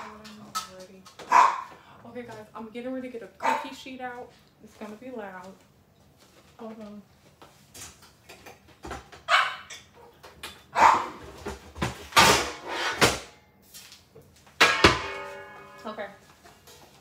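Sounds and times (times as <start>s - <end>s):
dog barking: 1.3s - 1.7s, 3.4s - 3.8s, 9.3s - 9.7s, 10.8s - 11.2s
metal cookie sheets clattering: 14.6s - 17.0s.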